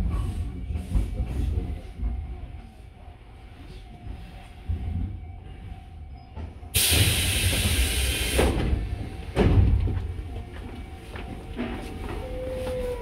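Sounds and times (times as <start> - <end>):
compressed air hiss from train: 6.7 - 8.8.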